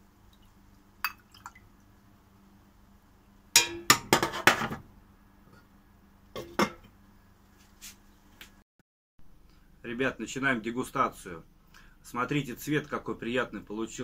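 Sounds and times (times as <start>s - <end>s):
glass lid clanking on pot: 3.6s - 4.8s
metal clanks on a pot: 3.6s - 4.8s, 6.4s - 6.9s.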